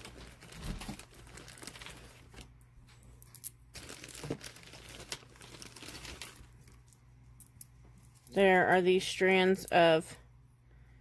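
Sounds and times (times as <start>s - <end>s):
plastic bags crinkling: 0.0s - 7.0s.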